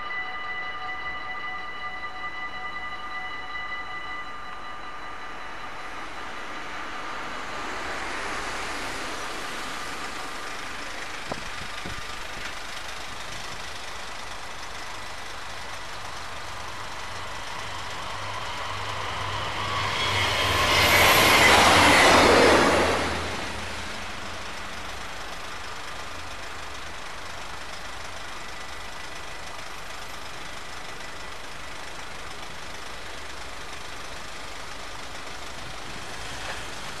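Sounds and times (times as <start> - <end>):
level crossing warning bells: 0.0 - 8.4
train passing at speed: 0.0 - 37.0.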